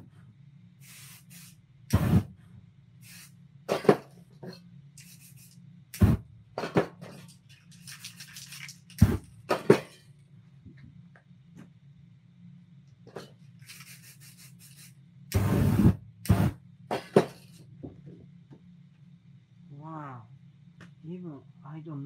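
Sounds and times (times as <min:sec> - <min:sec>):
spray can hissing: 0:00.8 - 0:02.2, 0:03.0 - 0:04.0, 0:05.0 - 0:06.2, 0:07.8 - 0:09.2, 0:13.6 - 0:16.6.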